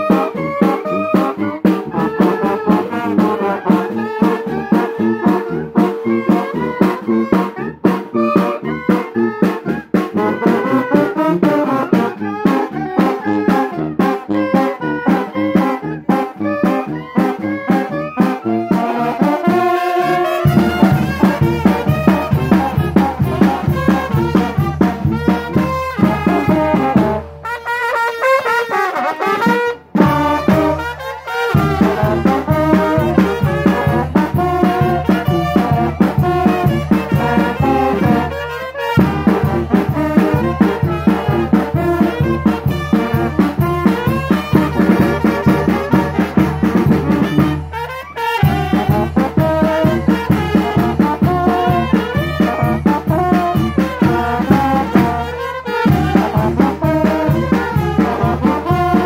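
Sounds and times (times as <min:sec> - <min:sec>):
brass horns: 0:00.0 - 0:59.0
cymbals: 0:00.0 - 0:59.0
bass drum beat: 0:19.5 - 0:27.3, 0:29.9 - 0:47.7, 0:48.4 - 0:59.0.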